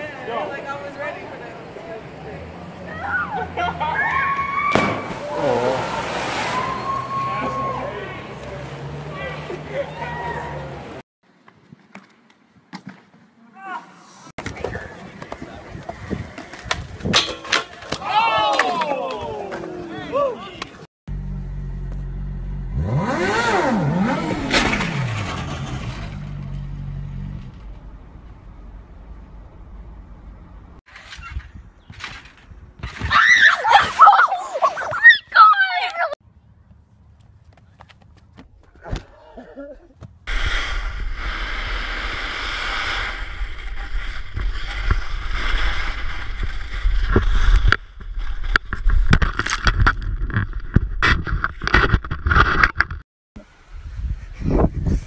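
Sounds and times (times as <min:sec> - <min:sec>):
wind buffeting camera: 0:14.4 - 0:17.3, 0:30.9 - 0:33.2, 0:53.6 - 0:55.0
motorcycle engine revving: 0:21.1 - 0:28.0
motorcycle crashing on pavement: 0:23.9 - 0:27.8
sliding on snow: 0:40.3 - 0:49.1.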